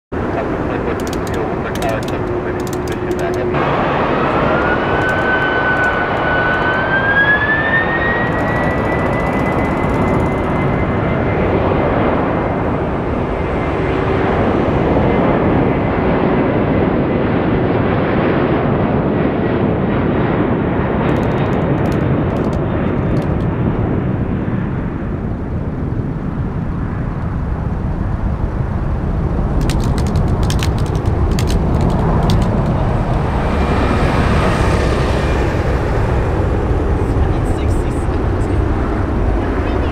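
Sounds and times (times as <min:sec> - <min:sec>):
high fan whine: 0:00.2 - 0:17.0
jet engine roar: 0:00.2 - 0:39.9.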